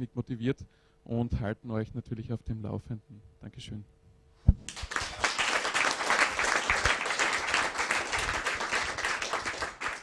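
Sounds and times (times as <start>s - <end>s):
audience applauding: 4.7s - 10.0s.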